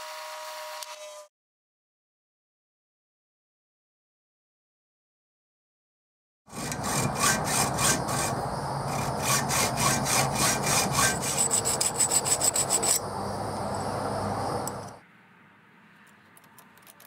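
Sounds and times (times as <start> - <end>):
hacksaw cutting metal tube: 6.5 - 13.0.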